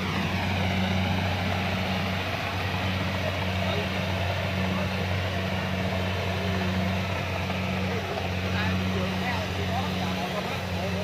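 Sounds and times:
combine harvester engine humming: 0.0 - 11.0.

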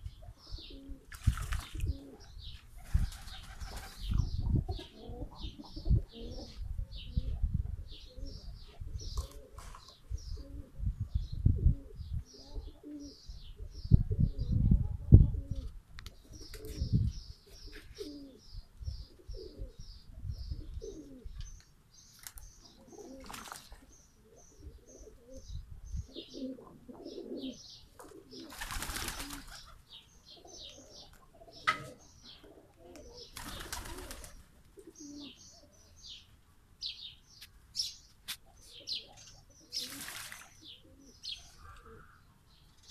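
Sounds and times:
small birds chirping: 0.0 - 14.6, 15.3 - 42.9
pigeons cooing: 0.0 - 21.5, 22.6 - 23.6, 24.2 - 36.2, 38.5 - 42.4
wings flapping and water splashing: 1.1 - 1.8, 23.2 - 23.9, 28.5 - 29.5, 33.4 - 34.4, 39.7 - 40.6.

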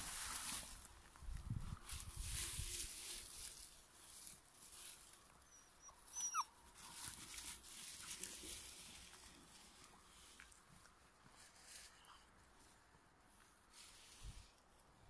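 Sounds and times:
puppy whimpering: 5.5 - 6.6.

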